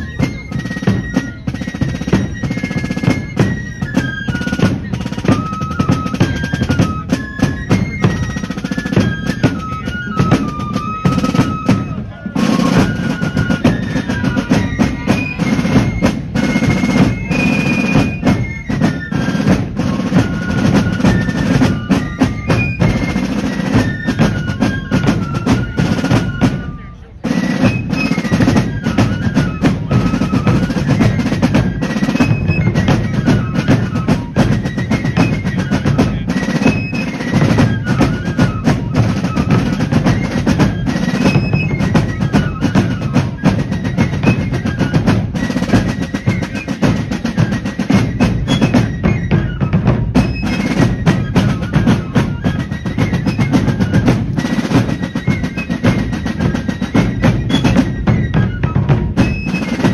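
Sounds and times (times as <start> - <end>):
snare drum rolls: 0.0 - 59.9.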